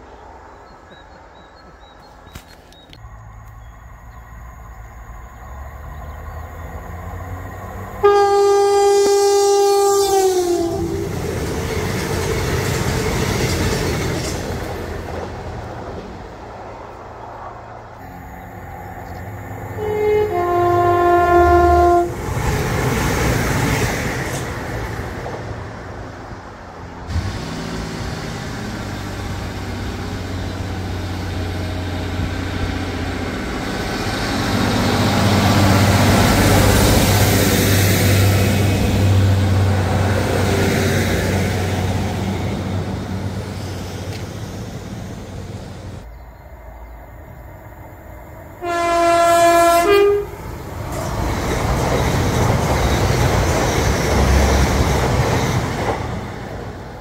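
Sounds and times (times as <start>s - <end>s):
train rushing by: 0.0s - 57.0s
train horn blast: 8.0s - 11.2s, 18.0s - 22.3s, 48.6s - 50.4s
two-tone train horn: 8.0s - 11.2s, 18.0s - 22.3s, 48.6s - 50.4s.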